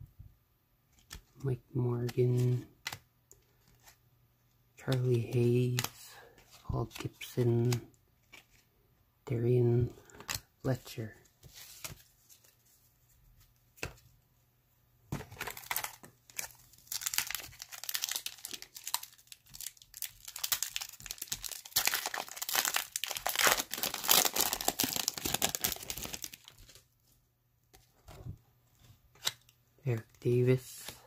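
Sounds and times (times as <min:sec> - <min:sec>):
wrapper being torn and crinkled: 0:15.4 - 0:26.8.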